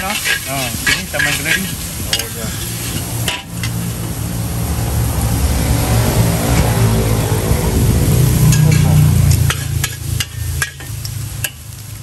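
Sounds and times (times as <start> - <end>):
metal spatula scraping a wok: 0.0 - 4.0, 8.2 - 11.6
noodles sizzling in a wok: 0.0 - 4.6, 7.8 - 12.0
vehicle engine humming: 0.0 - 12.0.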